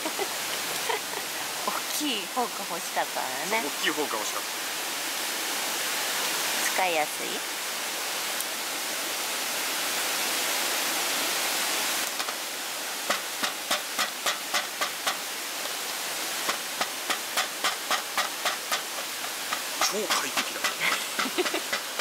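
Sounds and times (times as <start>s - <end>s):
steady hiss: 0.0s - 22.0s
fork tapping cutting board: 13.1s - 15.2s, 16.5s - 22.0s.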